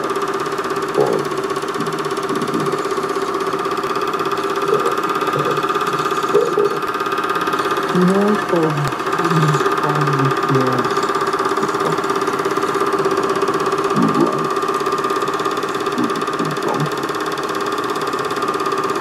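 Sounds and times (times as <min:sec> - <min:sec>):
film projector whirring: 0:00.0 - 0:19.0
voice from film soundtrack: 0:07.9 - 0:12.0.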